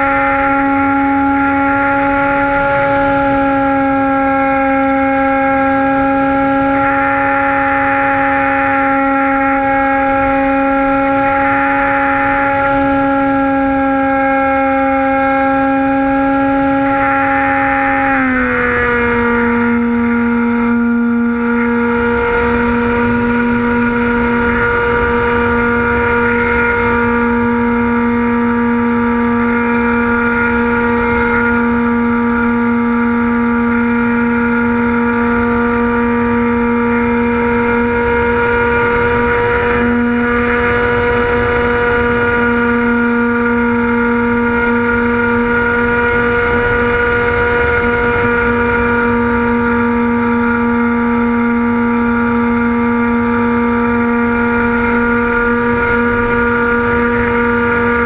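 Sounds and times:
model airplane motor whine: 0.0s - 58.0s
wind rushing over camera: 1.3s - 58.0s.

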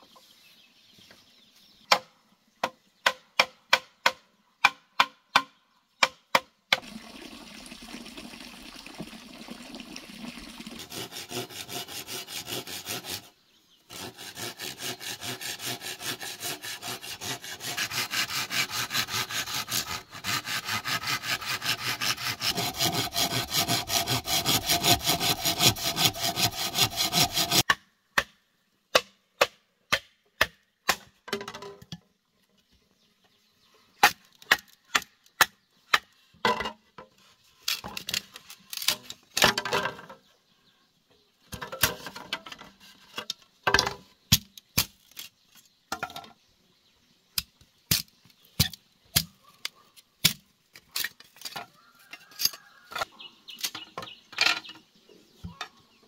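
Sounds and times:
hand saw cutting bamboo: 10.7s - 27.8s, 37.7s - 39.6s.

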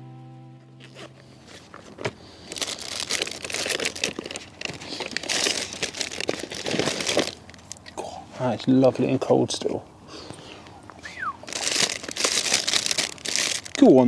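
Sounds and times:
plastic packaging crinkling: 0.8s - 7.9s, 11.4s - 14.0s.

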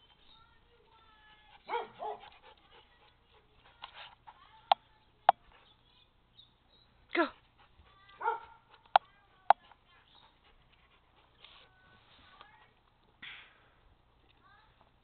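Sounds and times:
dog barking and yipping: 1.6s - 2.5s, 8.0s - 8.9s.

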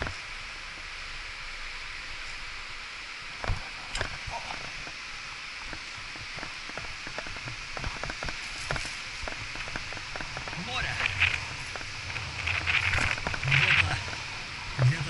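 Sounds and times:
steady hiss: 0.0s - 15.0s
mountain bike rattling: 5.7s - 15.0s.

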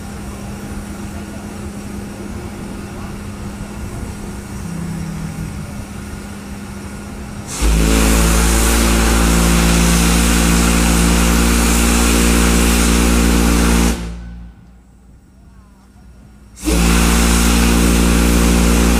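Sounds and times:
steam hissing: 0.0s - 14.7s, 16.0s - 18.9s
deep steam whistle: 3.6s - 14.8s, 16.6s - 18.9s.

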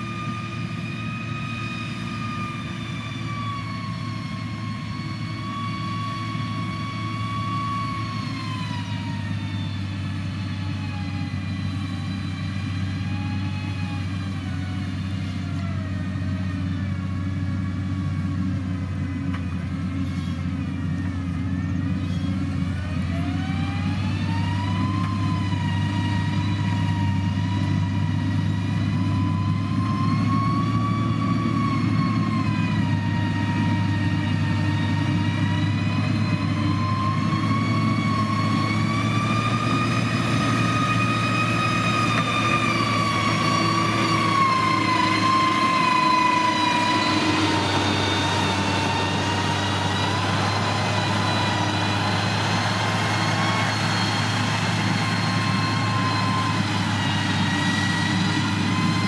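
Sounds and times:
diesel engine droning: 0.0s - 59.0s
high whine: 34.9s - 59.0s.

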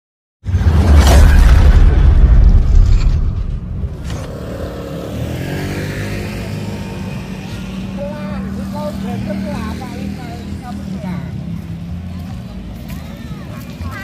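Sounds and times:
street parade: 3.9s - 14.0s.

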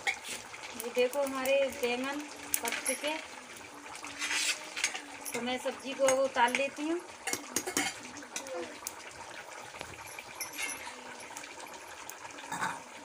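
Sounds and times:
wood fire hissing: 0.0s - 5.7s, 8.0s - 12.5s
metal clinks of tongs on pan: 4.8s - 8.5s.

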